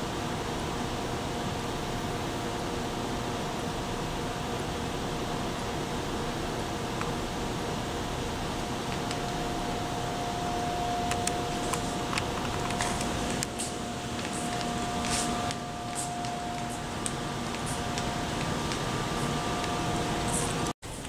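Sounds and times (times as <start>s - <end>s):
room hiss: 0.0s - 21.0s
thin hum: 8.7s - 20.7s
faint ticks and scuffs: 11.1s - 20.7s.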